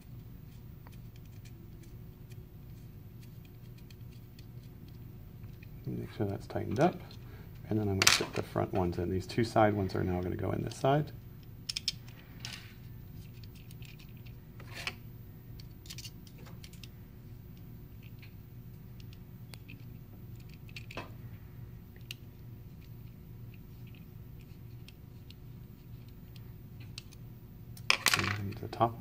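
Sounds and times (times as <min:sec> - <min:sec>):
faint steady hum: 0:00.0 - 0:29.0
hex key clicking on screws: 0:19.0 - 0:21.0.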